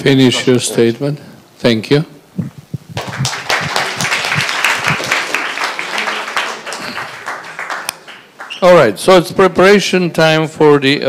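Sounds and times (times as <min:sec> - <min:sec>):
audience clapping: 0:02.9 - 0:08.6.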